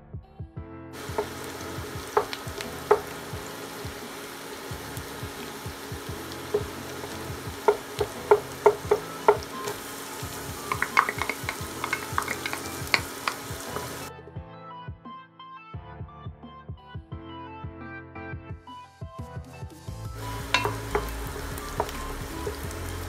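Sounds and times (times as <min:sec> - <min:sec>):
background music: 0:00.0 - 0:23.0
garlic sizzling in butter: 0:01.0 - 0:14.1, 0:20.1 - 0:23.0
wooden spoon knocking on pot: 0:01.0 - 0:14.1, 0:20.2 - 0:22.8.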